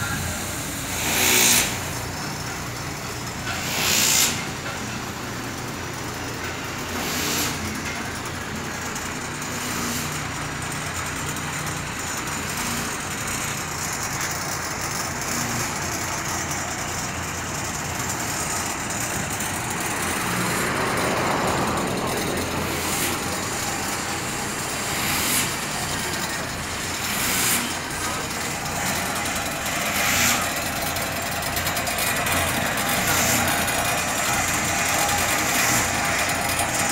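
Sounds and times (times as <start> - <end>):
loud air hisses: 0.0 - 5.8, 14.6 - 36.9
truck diesel engine idling: 0.0 - 36.9.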